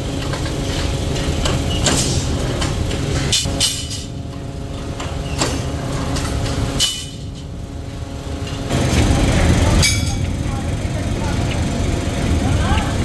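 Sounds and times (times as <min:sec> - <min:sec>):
power press humming: 0:00.0 - 0:13.0
rough machine noise: 0:00.0 - 0:13.0
ringing metal clanks: 0:09.8 - 0:10.4.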